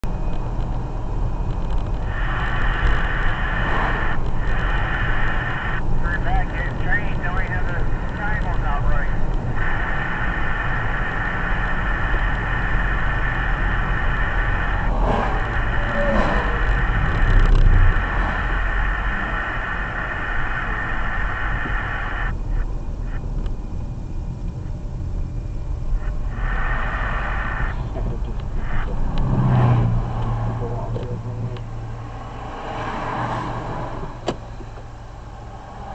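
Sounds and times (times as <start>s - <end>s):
road and engine rumble: 0.0s - 35.9s
high hiss: 9.5s - 22.4s.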